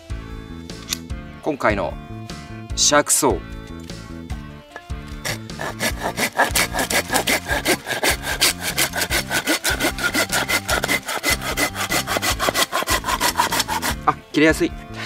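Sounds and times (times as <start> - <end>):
pruning saw cutting wood: 5.1 - 14.2.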